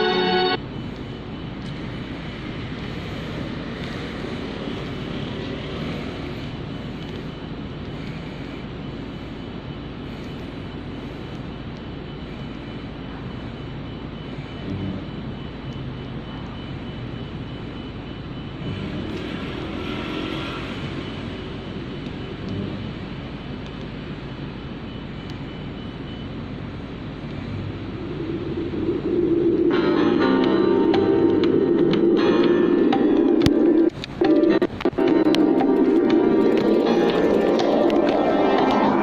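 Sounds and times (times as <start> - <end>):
wind and bicycle road noise: 0.5 - 39.0.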